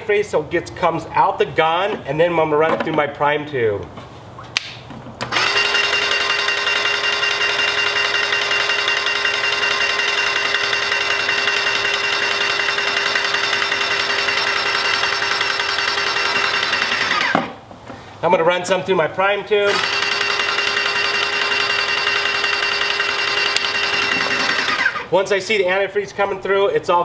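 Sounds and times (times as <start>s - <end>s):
airless paint sprayer running: 5.3s - 17.4s, 19.7s - 25.1s.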